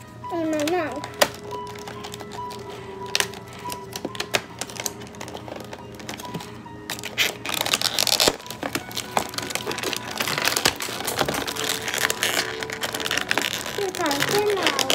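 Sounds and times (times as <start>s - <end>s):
faint music: 0.0s - 14.9s
plastic wrapper crinkling: 0.0s - 14.9s.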